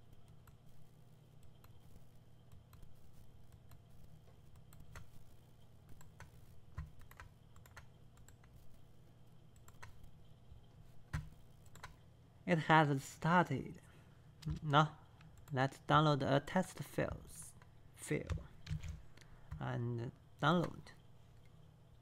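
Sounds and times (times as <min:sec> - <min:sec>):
low electrical hum: 0:00.0 - 0:22.0
keyboard and mouse clicks: 0:01.4 - 0:05.3, 0:05.9 - 0:08.7, 0:09.5 - 0:10.2, 0:11.1 - 0:12.0, 0:17.6 - 0:19.6, 0:20.5 - 0:21.6.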